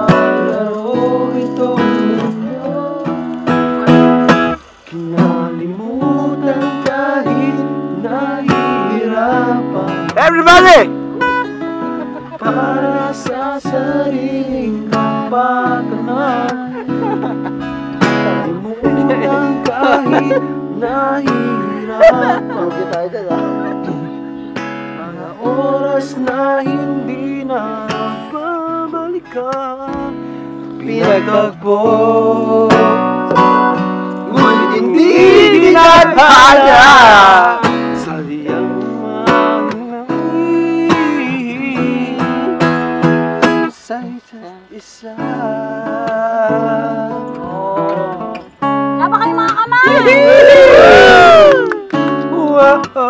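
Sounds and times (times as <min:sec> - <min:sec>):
acoustic guitar playing: 0:00.0 - 0:53.0
person singing: 0:11.5 - 0:24.4, 0:30.8 - 0:42.7, 0:44.0 - 0:53.0.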